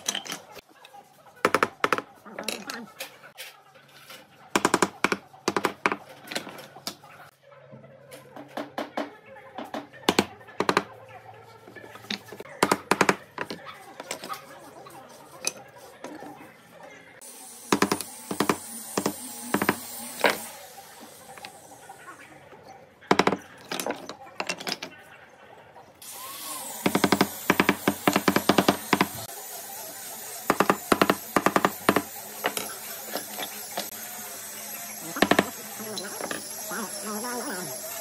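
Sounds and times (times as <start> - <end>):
wooden mallet knocking on wood: 10.1 - 10.9.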